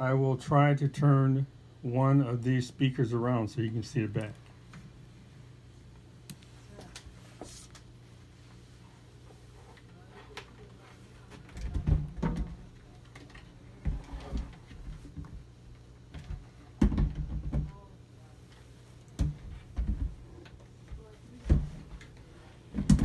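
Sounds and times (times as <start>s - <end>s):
low steady hum: 0.0s - 23.0s
speaker cabinets thumping and knocking: 16.2s - 17.8s, 22.7s - 23.0s.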